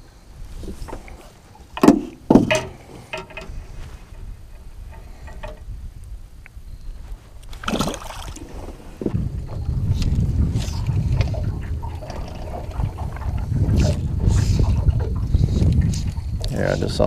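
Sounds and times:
knocks and bumps in a boat: 0.4s - 6.7s, 7.3s - 17.0s.

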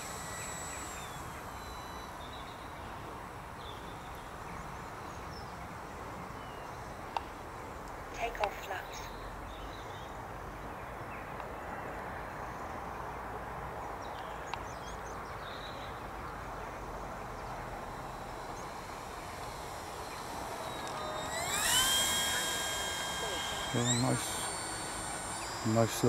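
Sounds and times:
electric motor whine of model plane: 0.0s - 8.8s, 15.4s - 26.0s
faint bird chirps: 0.1s - 7.3s.

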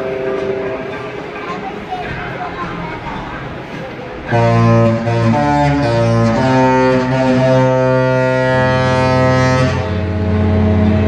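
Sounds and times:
ship horn playing a tune: 0.0s - 1.0s, 4.3s - 11.0s.

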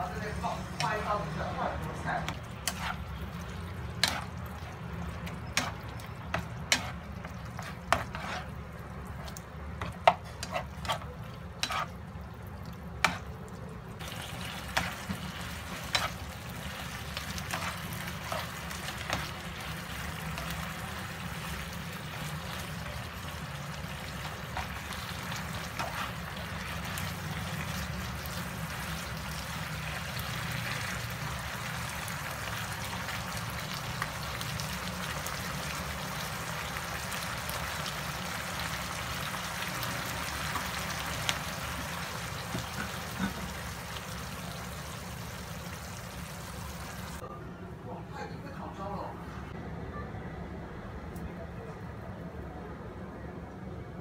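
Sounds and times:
sauce sizzling: 0.0s - 47.2s
spatula knocking and scraping pan: 2.3s - 3.0s, 4.0s - 4.3s, 5.2s - 8.6s, 9.2s - 12.0s.

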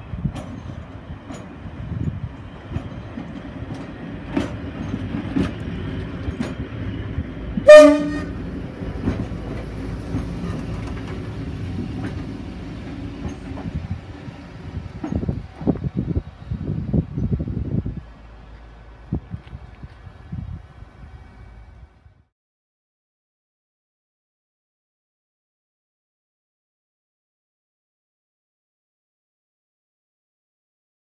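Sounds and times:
locomotive engines droning: 0.0s - 22.3s
train horn blast: 7.6s - 8.4s.

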